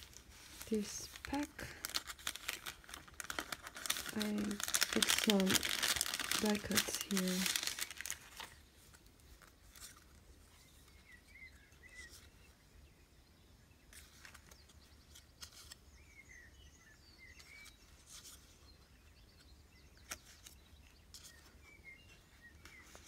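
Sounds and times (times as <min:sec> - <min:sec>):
paper rustling: 0:00.0 - 0:10.6.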